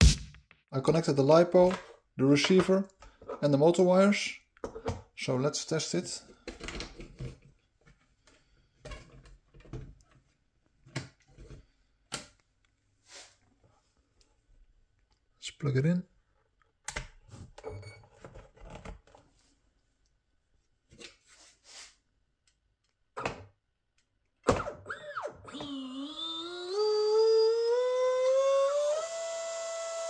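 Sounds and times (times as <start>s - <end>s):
electric motor whine: 25.5s - 30.0s.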